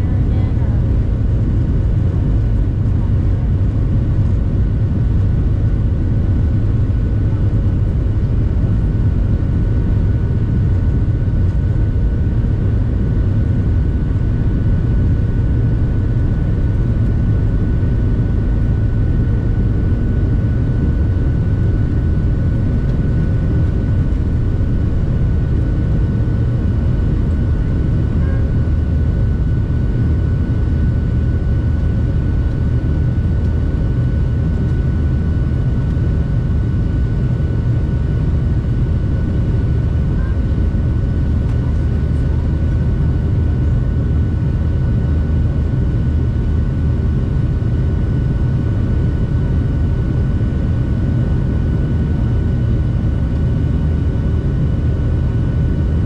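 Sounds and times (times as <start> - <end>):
airplane cabin engine rumble: 0.0 - 56.0
faint steady whine: 0.0 - 56.0.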